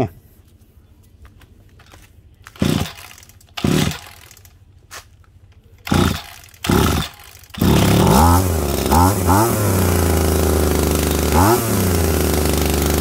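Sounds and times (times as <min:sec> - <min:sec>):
recoil starter cord cranking: 0:02.5 - 0:04.5, 0:05.8 - 0:13.0
small two-stroke engine revving: 0:02.6 - 0:04.2, 0:05.8 - 0:13.0.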